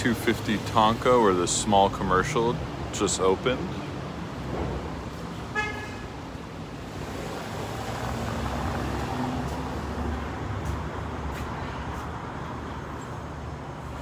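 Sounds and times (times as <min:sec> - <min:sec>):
car horn toot: 0:05.5 - 0:06.1.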